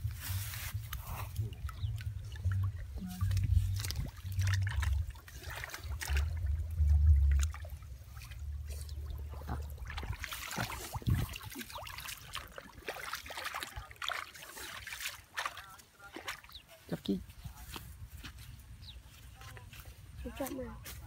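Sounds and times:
low rumbling: 0.0 - 11.5
muddy water trickling and splashing: 0.0 - 21.0.

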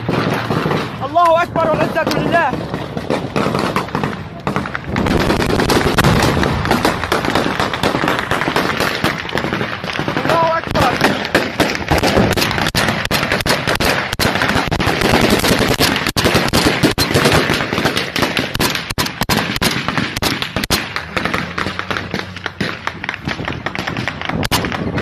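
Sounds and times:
rifle gunfire: 0.0 - 25.0.

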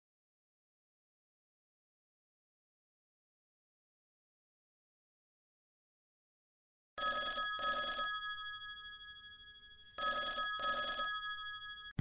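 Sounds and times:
old-style phone bell ringing: 7.0 - 12.0.

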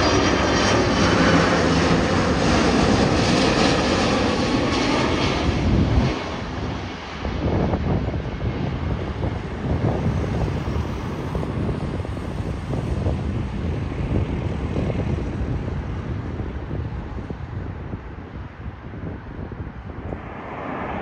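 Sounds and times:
jet engines rumbling: 0.0 - 21.0
wind buffeting microphone: 0.0 - 21.0.

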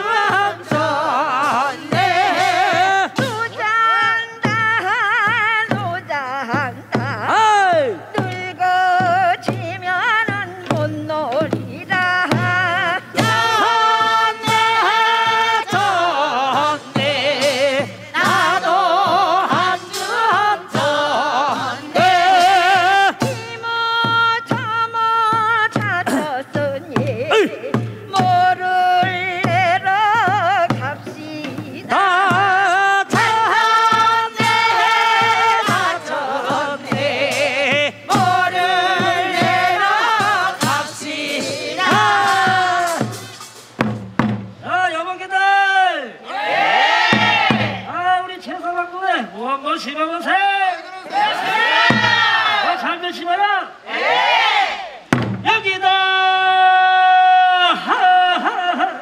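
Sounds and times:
person singing with vibrato: 0.0 - 43.6, 55.5 - 59.0
drum beats: 0.0 - 45.3, 46.2 - 48.3, 51.1 - 52.8, 53.8 - 59.0.

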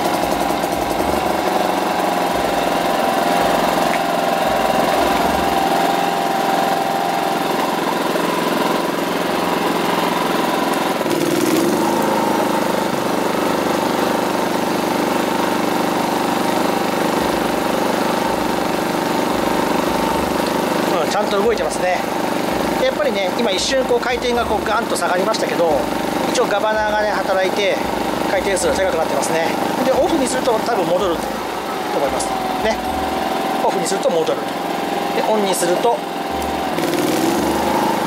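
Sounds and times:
generator engine running: 0.0 - 38.0
heat gun blower: 0.0 - 38.0.

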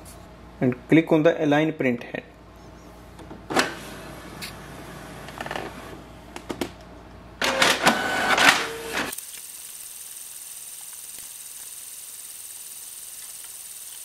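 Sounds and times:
inkjet printer whirring and clicking: 7.4 - 9.2.

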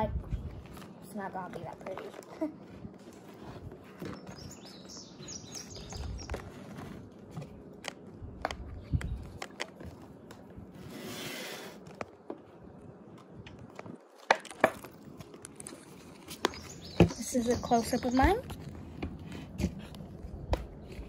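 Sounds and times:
birds chirping: 0.8 - 7.6, 8.3 - 10.4, 15.8 - 21.0.

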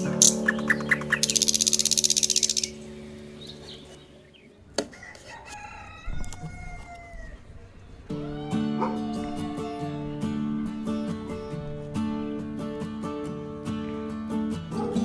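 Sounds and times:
loud fast rattling trill: 0.0 - 2.8
rooster crowing: 4.9 - 10.3.

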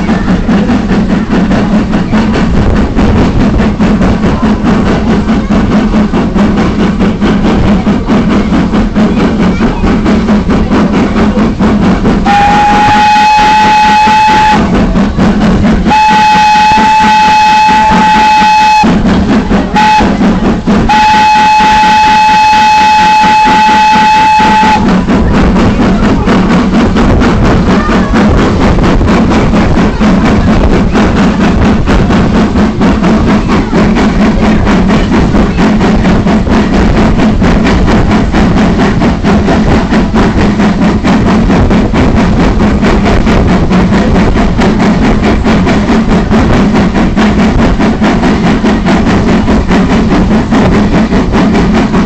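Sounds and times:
locomotive rhythmic exhaust beat: 0.0 - 52.0
steam locomotive whistle: 12.2 - 14.9, 15.8 - 19.1, 19.7 - 25.0.

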